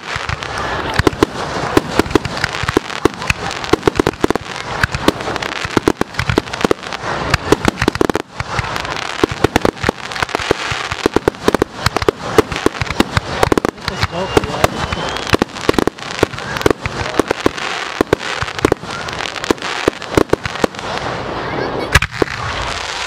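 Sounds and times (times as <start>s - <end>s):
fireworks bangs and pops: 0.0s - 23.0s
fireworks crackling: 0.0s - 23.0s.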